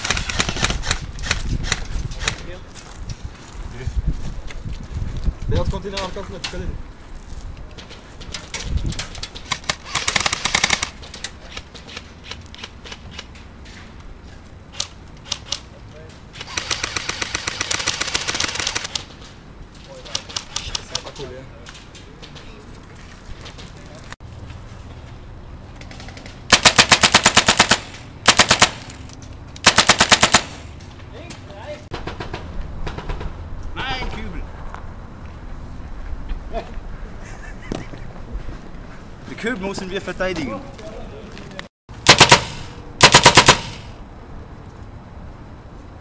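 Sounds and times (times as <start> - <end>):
airsoft gunfire: 0.0 - 1.8, 9.5 - 10.9, 16.4 - 19.0, 26.5 - 28.9, 29.6 - 30.7, 42.0 - 44.0
airsoft rifle bursts: 16.4 - 19.0, 29.6 - 30.6, 42.0 - 44.0.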